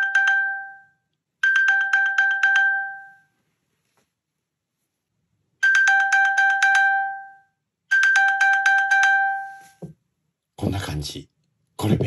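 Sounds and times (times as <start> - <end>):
rapid high phone pings: 0.0 - 3.3, 5.6 - 9.8.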